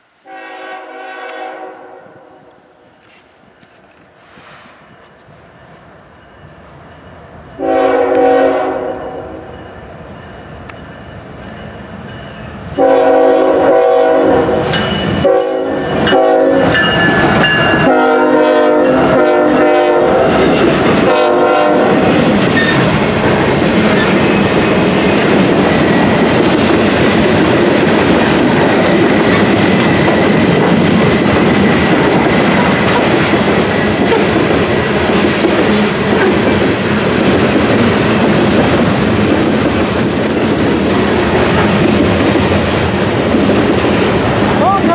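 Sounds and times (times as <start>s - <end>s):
train air horn blasts: 0.2s - 2.8s, 7.6s - 9.6s, 12.8s - 16.9s, 17.8s - 22.9s
locomotive rumble: 12.8s - 44.9s.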